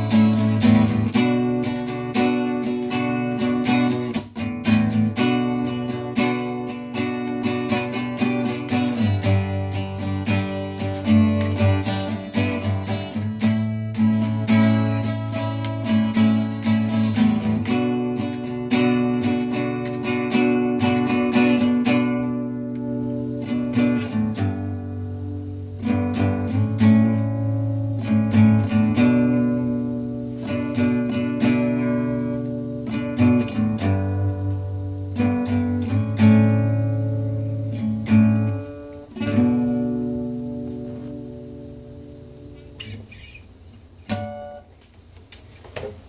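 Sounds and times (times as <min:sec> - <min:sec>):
acoustic guitar strumming: 0:00.0 - 0:45.1.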